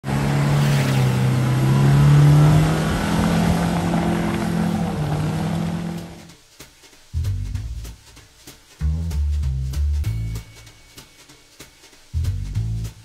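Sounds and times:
car engine revving high: 0.0s - 6.3s.

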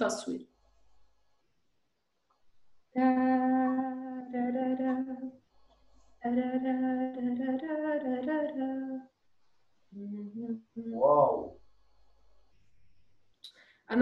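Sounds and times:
person humming a tune: 3.0s - 5.3s, 6.2s - 9.1s, 10.0s - 11.4s.

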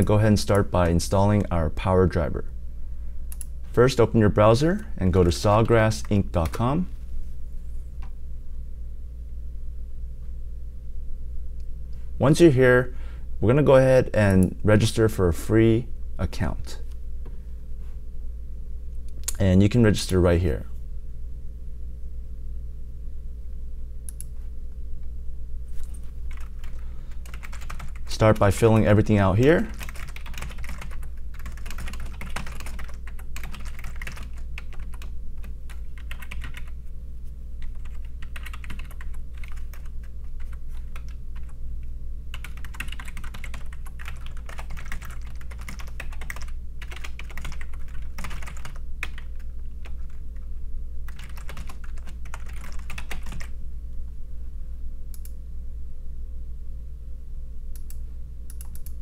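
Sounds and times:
steady low hum: 0.0s - 59.0s
typing on computer keyboard: 26.3s - 28.1s, 29.7s - 36.7s, 37.6s - 41.5s, 42.3s - 50.2s, 51.1s - 53.5s.

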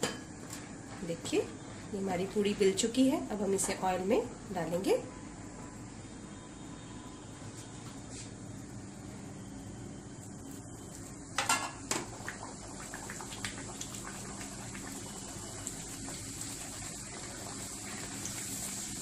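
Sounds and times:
dough sizzling in hot oil: 7.6s - 19.0s
oil bubbling and crackling: 10.2s - 19.0s.

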